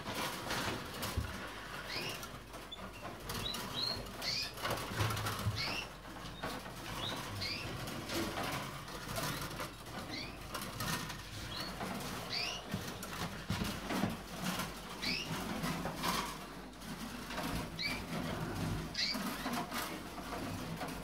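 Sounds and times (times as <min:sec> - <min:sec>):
finches chirping: 0:03.4 - 0:04.6, 0:11.4 - 0:12.6.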